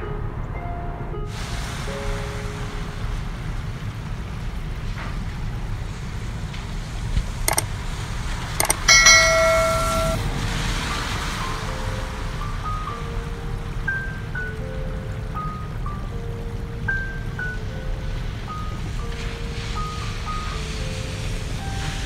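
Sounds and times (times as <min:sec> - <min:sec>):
soft background music: 0:00.0 - 0:03.8, 0:11.1 - 0:22.0
sharp clicks: 0:07.5 - 0:07.7, 0:08.6 - 0:10.2
bright ringing chime: 0:08.6 - 0:10.2.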